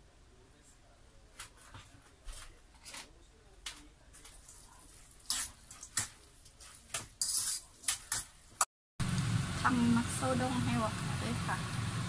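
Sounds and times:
salad tossed in metal bowl: 4.2 - 8.4.

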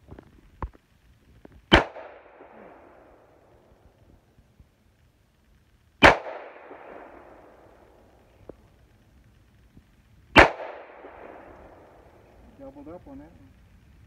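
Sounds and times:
gunshots with echo: 1.7 - 3.1, 6.0 - 7.6, 10.3 - 11.8.

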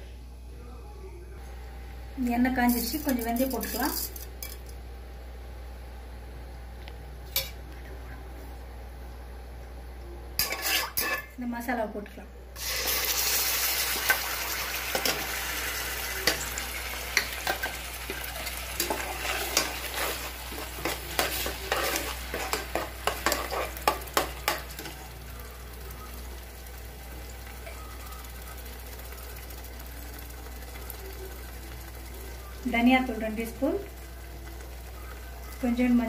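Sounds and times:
paste sizzling in hot oil: 12.6 - 35.6
ladle scraping and knocking pan: 18.8 - 24.9.

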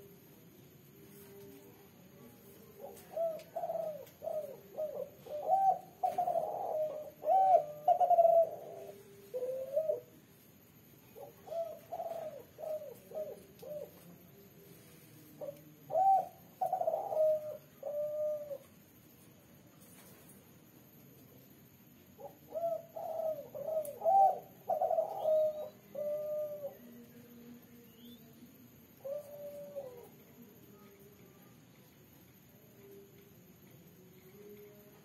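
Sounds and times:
dove cooing: 2.7 - 10.2, 11.2 - 14.1, 15.4 - 18.7, 22.2 - 27.0, 29.0 - 30.2.

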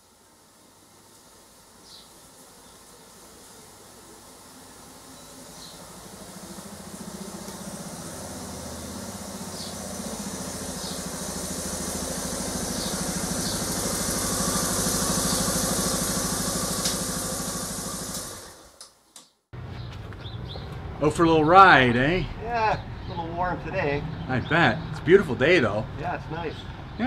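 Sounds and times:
motorcycle engine running: 4.9 - 18.8.

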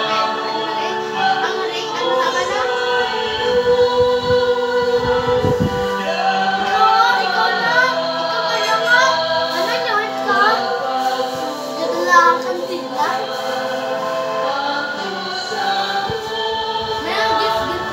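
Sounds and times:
choir singing a hymn: 0.0 - 17.9.

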